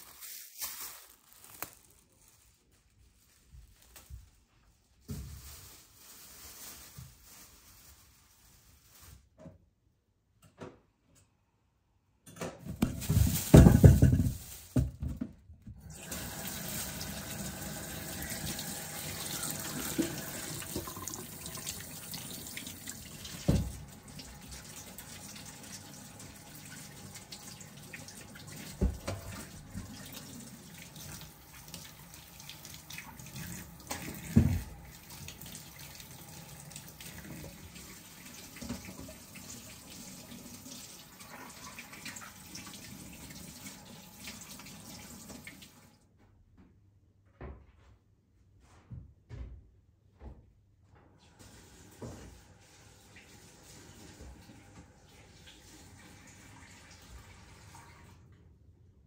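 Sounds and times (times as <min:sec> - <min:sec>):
tap running into sink: 0:16.2 - 0:23.9, 0:28.0 - 0:30.1, 0:33.6 - 0:35.4.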